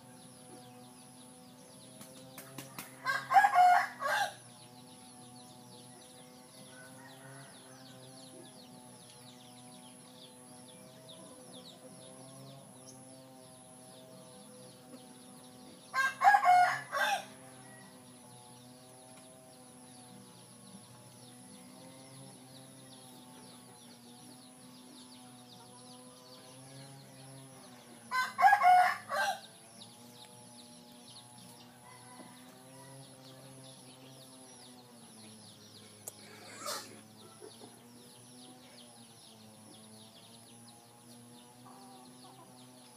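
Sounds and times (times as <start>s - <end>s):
rooster crowing: 3.0s - 4.4s, 6.3s - 8.3s, 15.9s - 18.0s, 28.1s - 29.5s, 31.7s - 33.2s.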